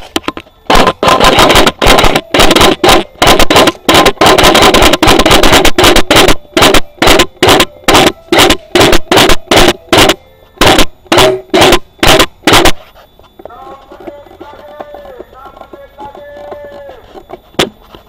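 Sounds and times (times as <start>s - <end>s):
airsoft gun full-auto bursts: 0.7s - 12.8s.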